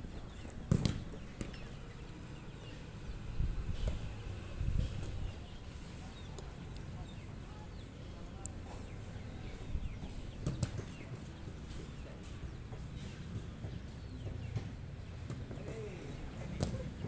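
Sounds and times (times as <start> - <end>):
birds chirping: 0.0 - 17.0
ball kicked knock: 0.7 - 1.5.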